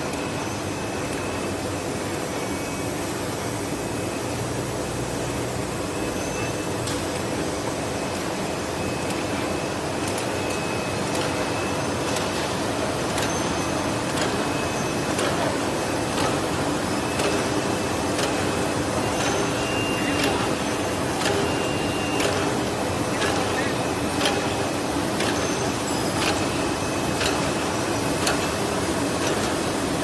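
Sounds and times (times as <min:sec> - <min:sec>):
packing machine whirring: 0:07.2 - 0:30.0
sharp machine clicks: 0:10.0 - 0:30.0.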